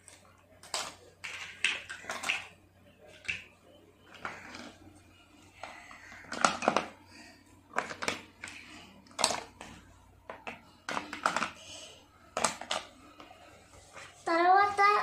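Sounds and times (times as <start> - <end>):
plastic toy pieces clattering: 0.6 - 2.5, 6.2 - 6.9, 7.7 - 9.6, 10.4 - 11.6.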